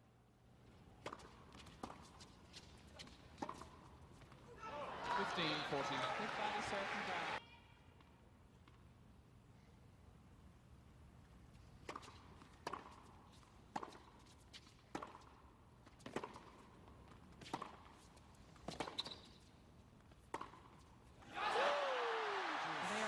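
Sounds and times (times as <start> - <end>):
tennis ball hit with rackets: 1.0 - 2.2, 11.8 - 15.4, 16.0 - 16.7, 17.4 - 18.0, 20.2 - 20.8
tennis ball bouncing on court: 1.0 - 4.4, 11.8 - 21.1.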